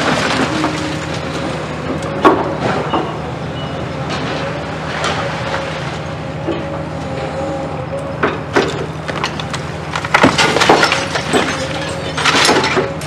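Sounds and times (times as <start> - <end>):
debris cracking and crashing: 0.0 - 1.7, 9.1 - 13.0
excavator diesel engine running: 0.0 - 13.0.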